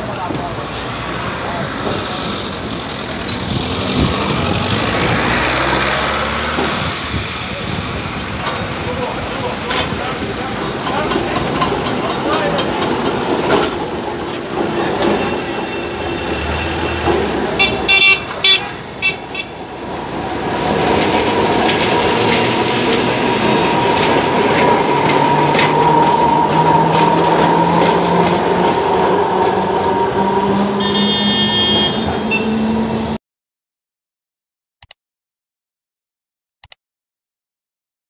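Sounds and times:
street traffic: 0.0s - 33.2s
tram horn toots: 14.8s - 19.7s, 22.8s - 33.1s
tram motor whine and hum: 19.6s - 33.2s.

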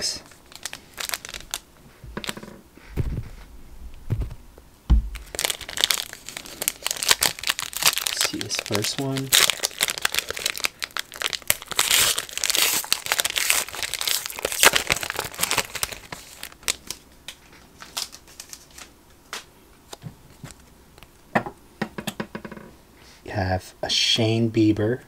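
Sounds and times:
foil pack tearing and crinkling: 0.4s - 1.6s, 5.2s - 17.0s, 17.8s - 18.9s.

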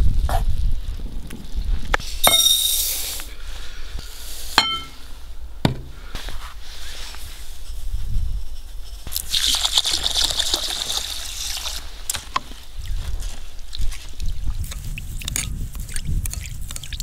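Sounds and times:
glass clinking: 2.2s - 2.9s, 4.6s - 5.0s.

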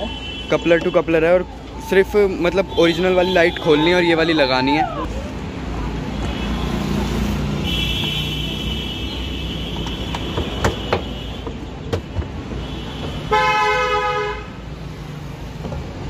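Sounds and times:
low traffic rumble: 0.0s - 16.0s
vehicle horn: 7.6s - 11.4s, 12.6s - 14.6s.

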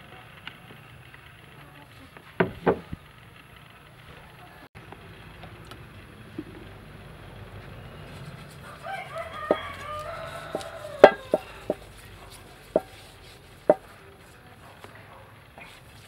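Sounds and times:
sharp knocks: 2.4s - 3.0s, 10.5s - 11.8s, 12.7s - 13.0s
rooster crowing: 7.8s - 13.1s.

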